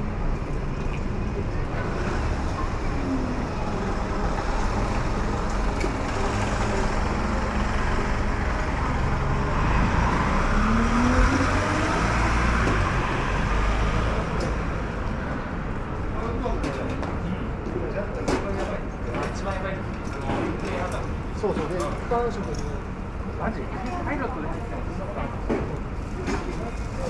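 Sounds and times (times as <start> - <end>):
rumble of passing vehicles: 0.0 - 27.0
engine rising in pitch: 2.1 - 14.3.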